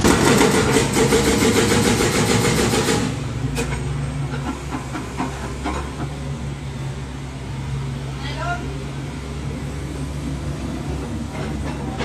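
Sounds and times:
hydraulic breaker hammering concrete: 0.0s - 3.3s
diesel engine running: 0.0s - 12.0s.

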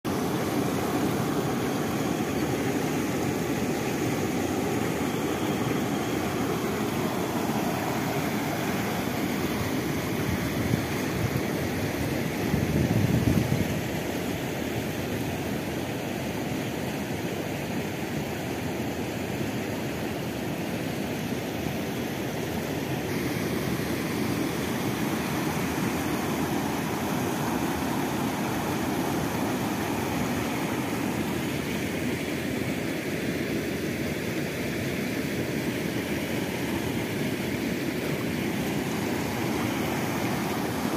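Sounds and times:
river water rushing over rocks: 0.1s - 40.9s.

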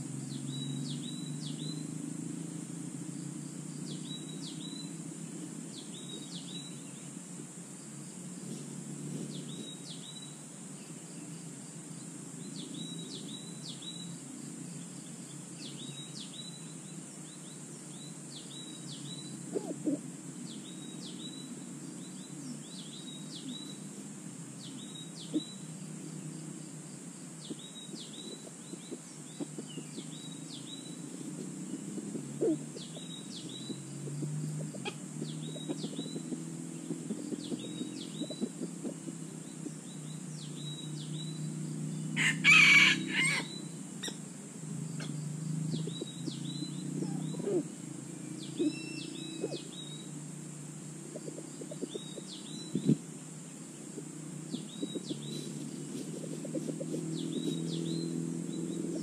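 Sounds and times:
high insect drone: 0.0s - 59.0s
small bird chirping: 0.2s - 2.0s, 3.1s - 7.2s, 8.5s - 50.4s, 51.0s - 59.0s
faint rustles in leaf litter: 54.6s - 57.6s.

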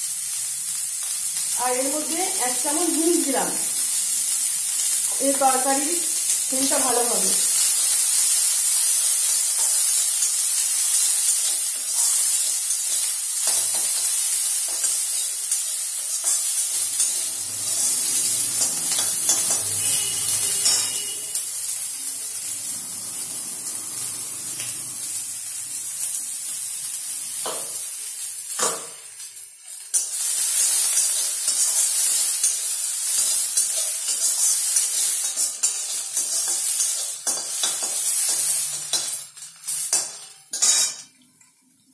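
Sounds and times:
onions sizzling in hot oil: 0.0s - 41.1s
metal spatula scraping pan: 16.2s - 21.4s.

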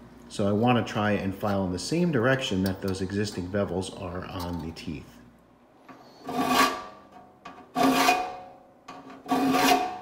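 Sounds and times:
file rasping on saw teeth: 6.2s - 7.0s, 7.7s - 8.3s, 9.2s - 10.0s.

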